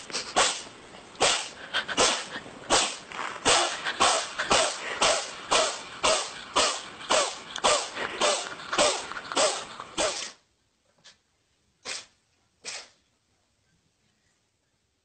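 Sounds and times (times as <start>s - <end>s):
cat sneezing: 0.0s - 10.4s, 11.8s - 13.0s.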